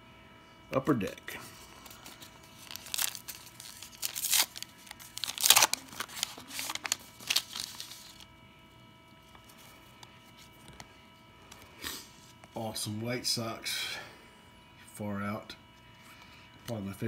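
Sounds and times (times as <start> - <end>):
foil wrapper tearing and crinkling: 1.8 - 8.2.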